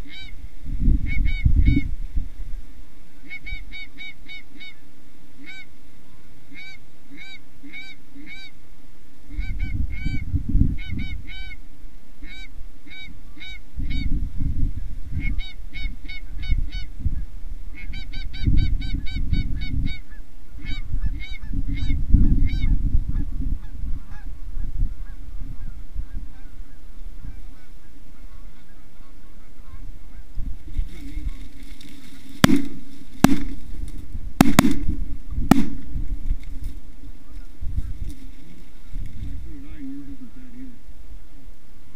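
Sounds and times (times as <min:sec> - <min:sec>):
geese honking: 0:03.2 - 0:04.8, 0:05.4 - 0:05.7, 0:06.5 - 0:08.6, 0:12.2 - 0:14.1, 0:15.2 - 0:16.9, 0:17.7 - 0:33.9, 0:37.0 - 0:40.9.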